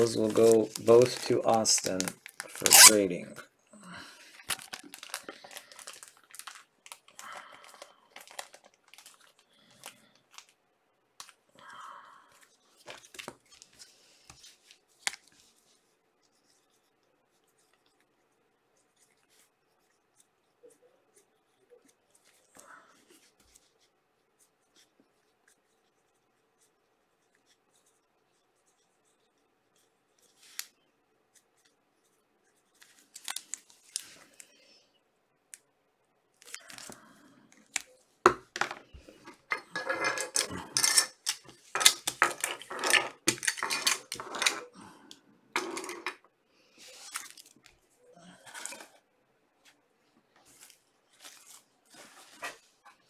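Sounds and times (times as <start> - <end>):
plastic crinkling and rustling: 0.0 - 3.3, 4.2 - 10.6, 12.4 - 15.8, 32.6 - 34.6, 36.4 - 44.8, 46.8 - 49.0, 49.6 - 53.0.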